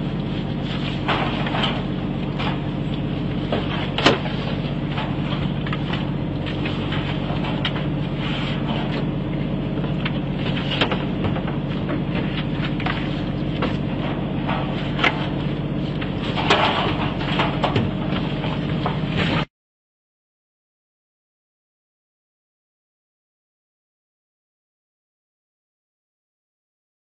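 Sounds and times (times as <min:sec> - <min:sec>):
boat engine running: 0:00.0 - 0:19.5.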